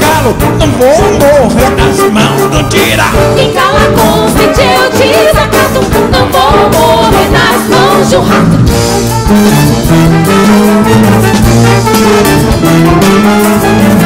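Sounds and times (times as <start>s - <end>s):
wind and brass orchestra playing: 0.0s - 14.0s
women singing: 3.4s - 8.6s.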